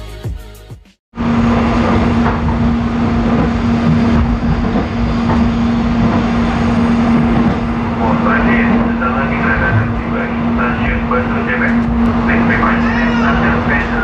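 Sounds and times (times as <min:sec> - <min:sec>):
train wheels rumbling on track: 0:01.2 - 0:14.0.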